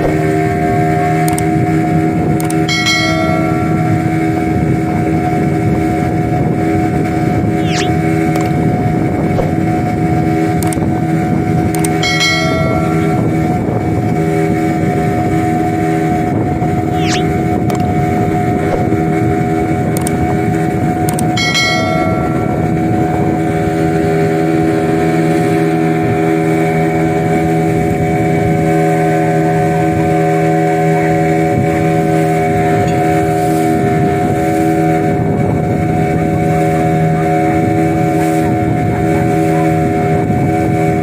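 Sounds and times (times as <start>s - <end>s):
boat engine droning: 0.0s - 41.0s
brief ringing tone: 2.7s - 4.4s, 7.6s - 8.0s.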